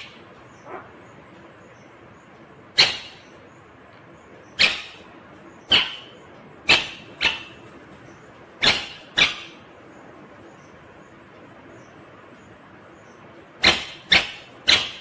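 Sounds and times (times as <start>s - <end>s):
low steady hiss: 0.0s - 15.0s.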